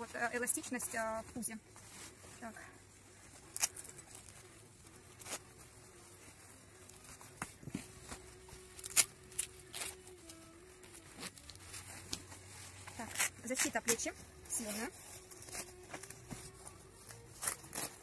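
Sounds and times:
fabric rustling: 0:00.0 - 0:18.0
zipper clicks and scrapes: 0:06.9 - 0:18.0.

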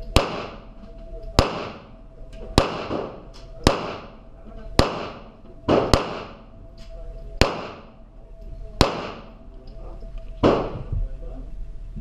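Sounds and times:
pistol shots echoing indoors: 0:00.0 - 0:08.2, 0:08.8 - 0:09.5, 0:10.4 - 0:10.8.

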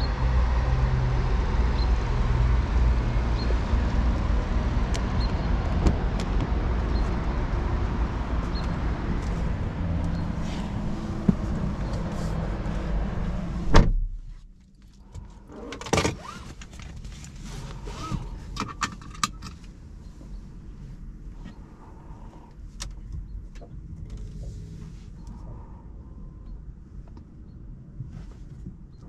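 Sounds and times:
steady outside noise: 0:00.0 - 0:29.0
car door slamming: 0:13.6 - 0:14.2.

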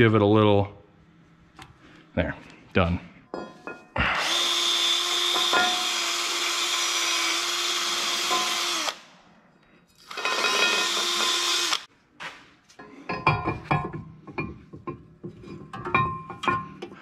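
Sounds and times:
cordless drill whining: 0:04.2 - 0:09.0, 0:10.1 - 0:11.9.

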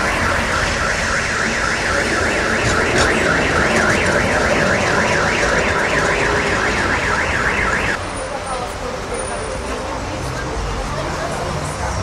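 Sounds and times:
electronic alarm siren warbling: 0:00.0 - 0:08.0
street traffic rumble: 0:00.0 - 0:12.0.

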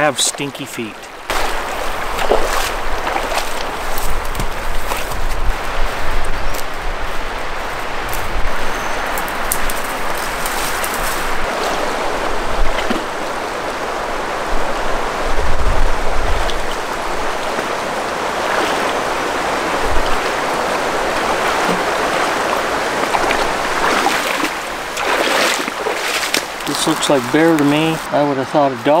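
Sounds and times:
river rushing over rocks: 0:09.3 - 0:28.2.

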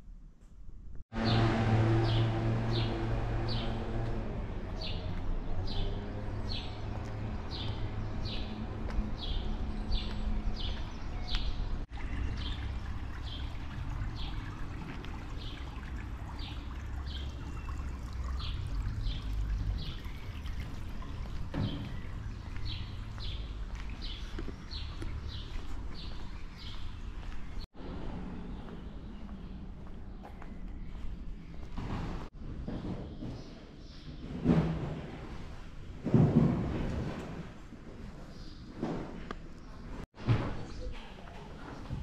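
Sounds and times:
running water: 0:11.9 - 0:22.6.

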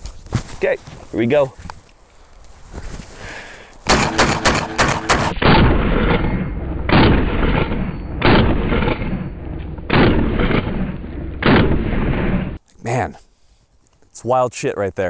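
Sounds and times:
heavy booms: 0:03.9 - 0:12.6
shotgun shots: 0:03.9 - 0:12.6.

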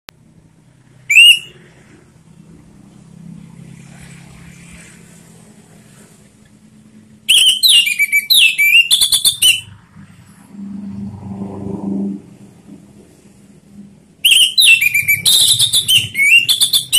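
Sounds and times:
thrush singing whistled notes: 0:01.0 - 0:01.7, 0:07.3 - 0:09.8, 0:14.2 - 0:16.9.

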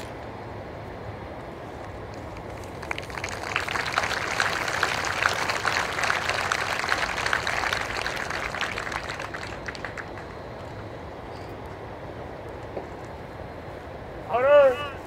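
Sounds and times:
crowd applauding: 0:02.4 - 0:11.0.

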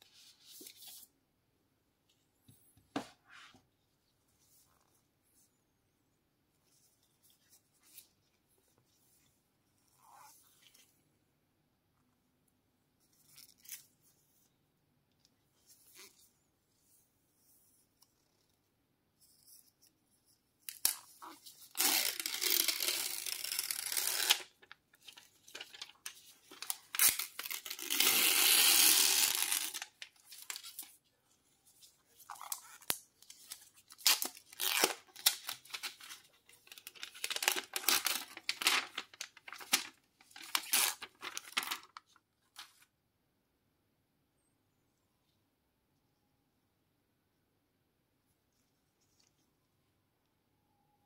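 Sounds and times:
plastic film peeling rip: 0:21.7 - 0:24.6, 0:26.5 - 0:30.9, 0:33.9 - 0:36.2, 0:36.8 - 0:41.9
plastic film crinkling: 0:21.7 - 0:30.9, 0:32.2 - 0:42.8.

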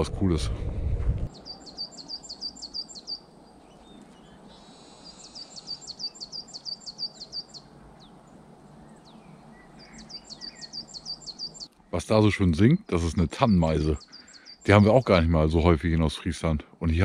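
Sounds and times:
bird singing high notes: 0:01.3 - 0:08.2, 0:08.8 - 0:11.7, 0:12.6 - 0:15.0.

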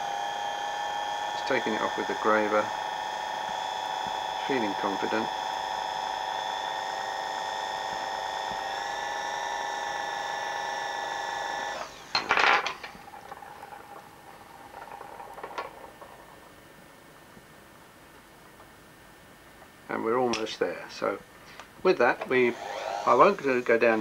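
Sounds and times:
lathe whining: 0:00.0 - 0:17.0, 0:22.2 - 0:24.0
handling clatter: 0:12.0 - 0:16.9.

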